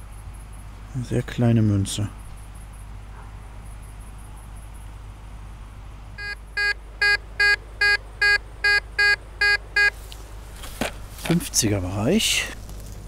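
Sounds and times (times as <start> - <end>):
metal detector short beeps: 6.2 - 9.9.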